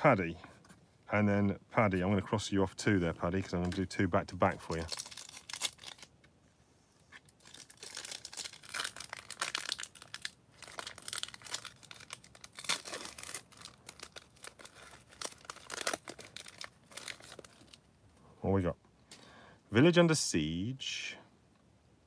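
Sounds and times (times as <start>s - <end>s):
foil wrapper tearing and crinkling: 3.7s - 6.2s, 7.3s - 17.9s.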